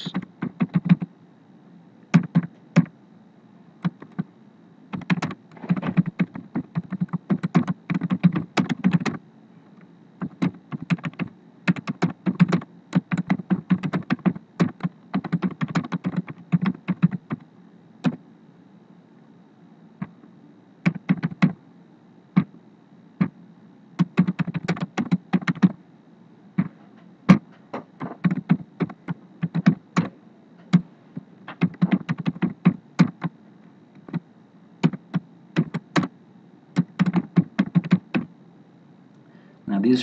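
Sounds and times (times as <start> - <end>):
computer keyboard typing: 0.0 - 1.1, 2.2 - 2.9, 3.8 - 4.2, 4.9 - 9.2, 10.2 - 17.4, 20.9 - 21.6, 24.0 - 25.8, 28.0 - 30.1, 31.5 - 33.3, 34.8 - 36.1, 36.8 - 38.3.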